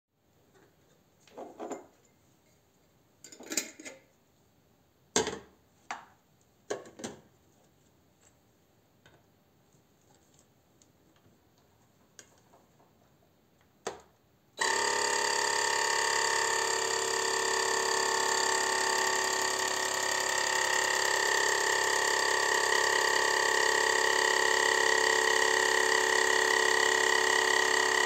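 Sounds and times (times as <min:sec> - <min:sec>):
vacuum sealer pump whining: 0:14.6 - 0:28.0.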